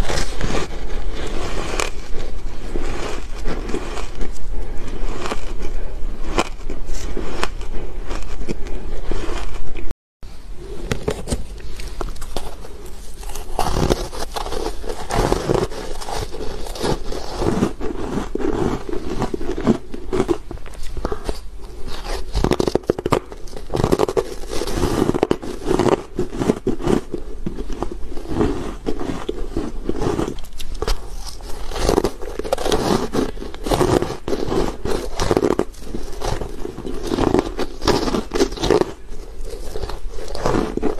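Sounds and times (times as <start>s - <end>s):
chewing: 0.0s - 9.9s, 11.0s - 40.9s
ice cubes crunching: 11.0s - 40.9s.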